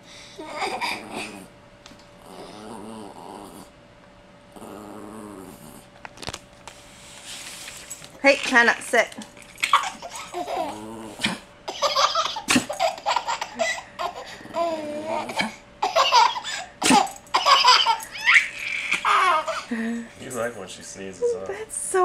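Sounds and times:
baby laughing: 0.4 - 1.3, 9.6 - 10.8, 11.7 - 19.7
dog sneezing: 11.2 - 12.9, 15.3 - 19.1.

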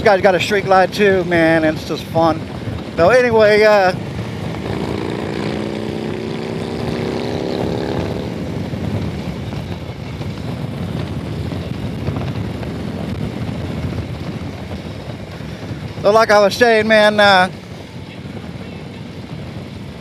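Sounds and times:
motorcycle engine running: 0.0 - 20.0
wind and road noise: 0.0 - 20.0.

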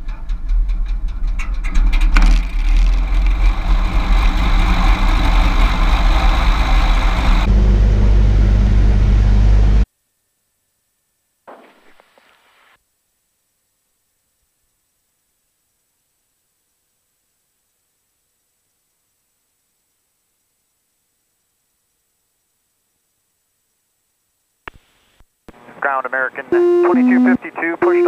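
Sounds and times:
piston aircraft engine idling: 0.1 - 9.8.

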